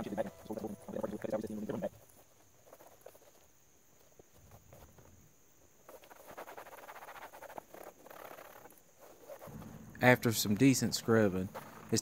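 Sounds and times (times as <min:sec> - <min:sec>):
rag scrubbing plastic: 0:05.8 - 0:12.0.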